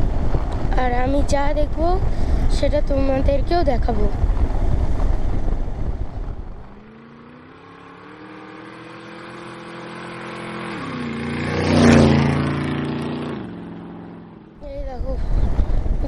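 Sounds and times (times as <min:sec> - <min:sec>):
engine hum during ride: 0:00.0 - 0:16.0
vehicle passing close: 0:03.6 - 0:14.6.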